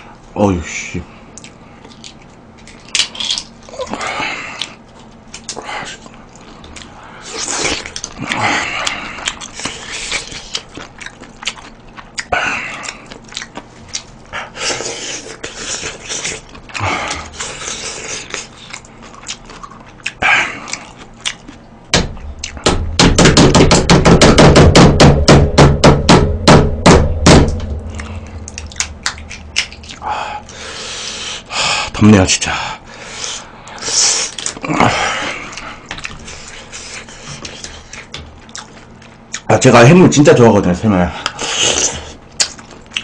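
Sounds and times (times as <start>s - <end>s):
chewing and smacking: 1.3s - 22.8s, 27.8s - 30.8s, 33.1s - 39.6s, 41.2s - 43.0s.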